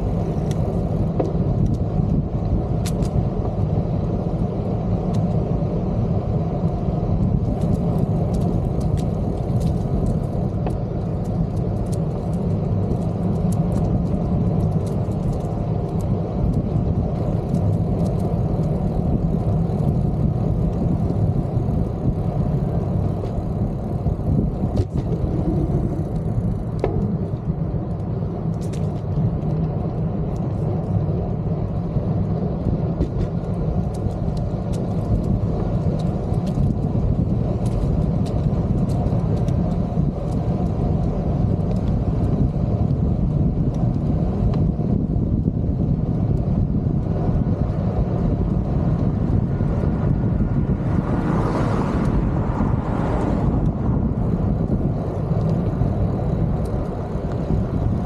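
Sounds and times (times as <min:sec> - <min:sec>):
small ticks and rattles: 0:00.0 - 0:51.0
bicycle tyres rolling on pavement: 0:00.0 - 0:58.0
wind rumble on microphone: 0:00.0 - 0:58.0.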